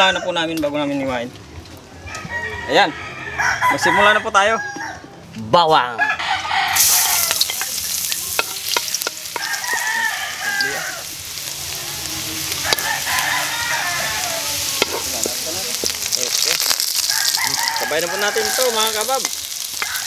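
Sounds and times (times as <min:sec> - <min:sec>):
rooster crowing: 0:02.0 - 0:05.2, 0:06.0 - 0:07.5, 0:09.3 - 0:15.1, 0:17.0 - 0:20.0
garlic sizzling in hot oil: 0:06.7 - 0:20.0.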